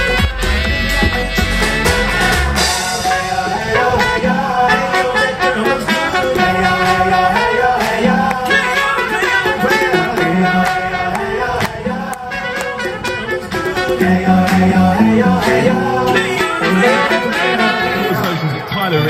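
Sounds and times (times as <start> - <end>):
deep bass: 0.0 - 3.1, 13.8 - 17.9
song with singing voice and beat: 0.0 - 19.0.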